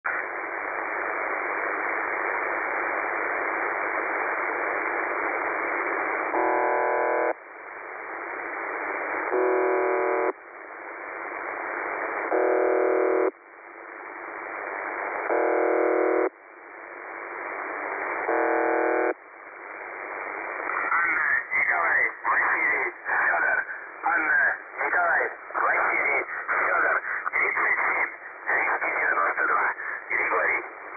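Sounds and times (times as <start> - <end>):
radio buzzes: 0.1 - 7.4, 8.6 - 10.4, 11.4 - 13.4, 14.5 - 16.4, 17.4 - 19.2, 19.8 - 30.9
radio static hiss: 0.1 - 30.9.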